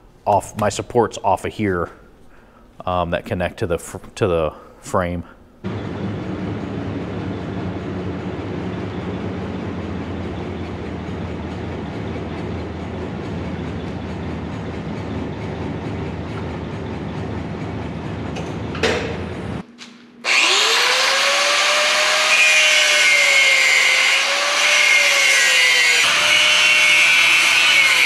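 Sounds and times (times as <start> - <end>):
low rumble of shop machinery: 5.6 - 20.1
power tool cutting steel: 20.2 - 28.0.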